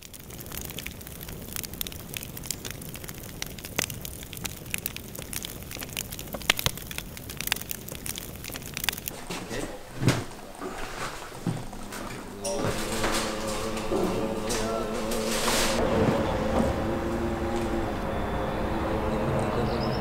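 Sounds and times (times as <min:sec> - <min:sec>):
sharp pops: 0:00.0 - 0:09.2
crackling and snapping: 0:00.0 - 0:15.8.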